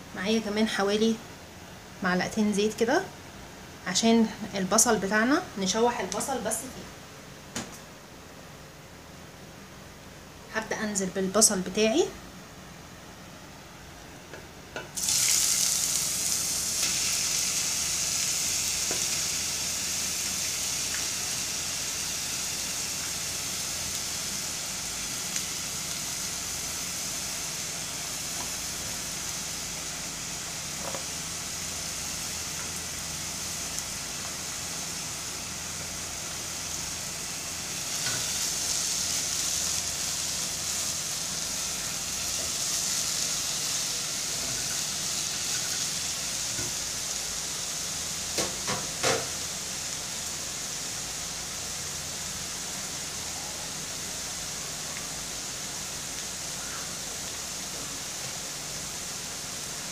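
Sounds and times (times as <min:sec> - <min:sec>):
onions sizzling in hot oil: 0:14.8 - 0:59.9.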